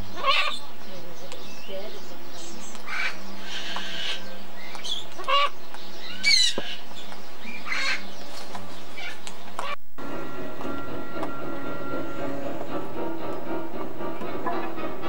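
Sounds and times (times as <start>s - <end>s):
macaw squawking: 0.0s - 8.1s.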